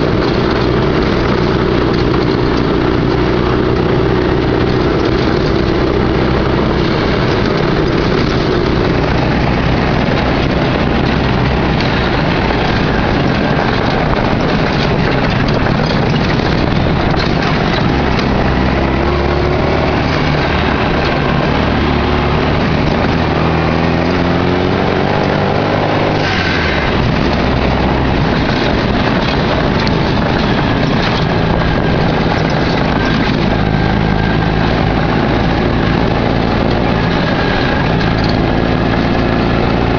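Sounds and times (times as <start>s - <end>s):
rattling and road noise: 0.0s - 39.9s
vehicle engine under load: 0.0s - 39.9s.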